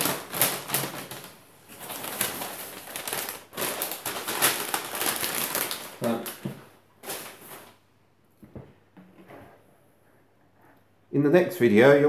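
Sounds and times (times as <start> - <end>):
paper rustling and crinkling: 0.0 - 7.8.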